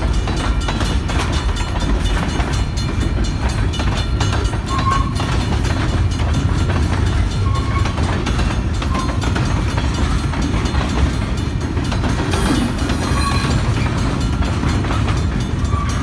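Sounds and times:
freight train wheels rumbling: 0.0s - 16.0s
wheels clicking over rail joints: 0.0s - 16.0s
high wheel squeals: 4.7s - 5.3s, 7.3s - 8.2s, 12.4s - 14.0s.

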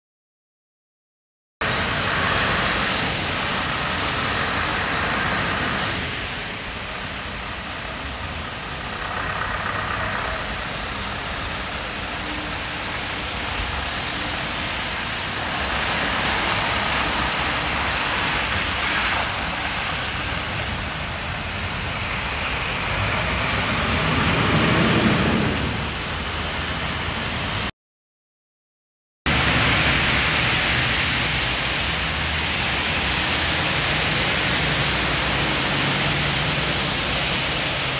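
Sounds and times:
truck diesel engine running: 1.6s - 12.2s
rain: 1.6s - 27.7s, 29.3s - 37.9s
tyres hissing on wet road: 1.6s - 27.7s, 29.3s - 37.9s.

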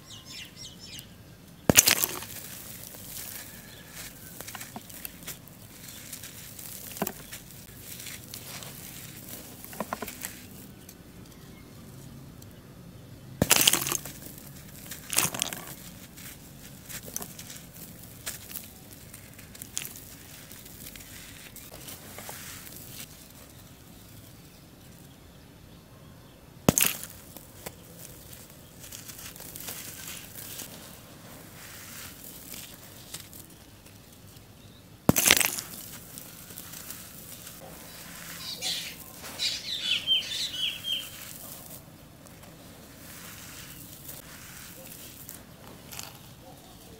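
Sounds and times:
charcoal breaking crunches: 1.6s - 11.4s, 13.4s - 24.5s, 26.6s - 46.9s
charcoal powder sifting through fingers: 1.7s - 11.3s, 13.4s - 24.6s, 26.7s - 34.4s, 35.1s - 46.9s.

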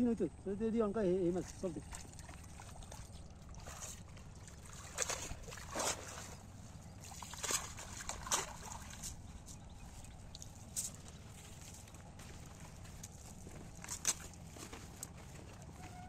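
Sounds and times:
pond water sloshing and splashing: 1.0s - 16.0s.

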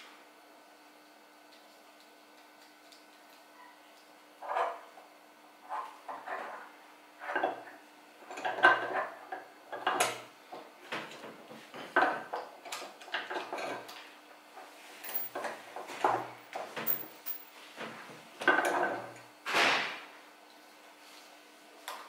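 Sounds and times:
metallic clinks and knocks: 15.0s - 15.5s, 16.8s - 17.5s.

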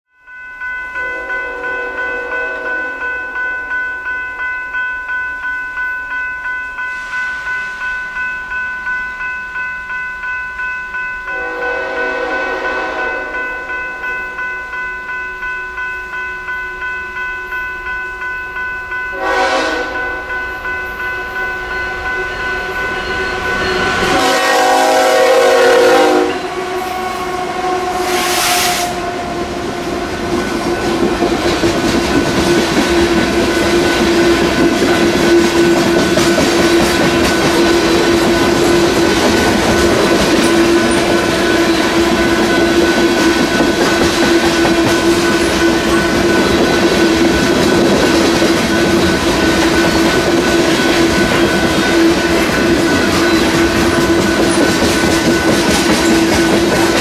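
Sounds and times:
crossing bell ringing: 0.1s - 57.0s
train horn blasts: 1.0s - 3.1s, 11.3s - 13.7s, 19.1s - 20.3s, 22.6s - 30.2s.

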